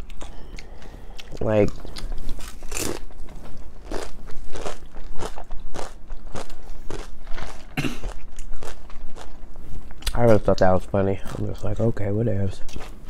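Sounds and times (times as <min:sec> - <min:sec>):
crunching chips: 0:01.2 - 0:09.4.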